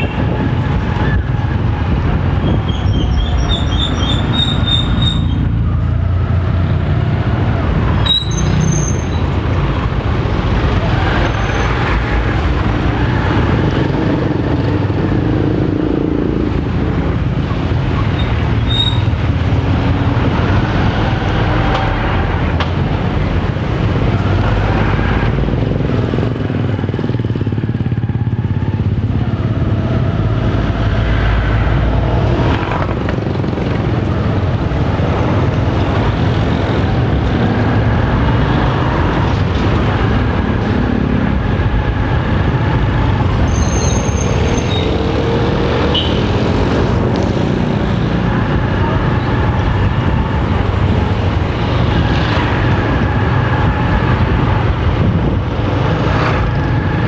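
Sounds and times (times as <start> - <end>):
road and wind noise: 0.0 - 57.0.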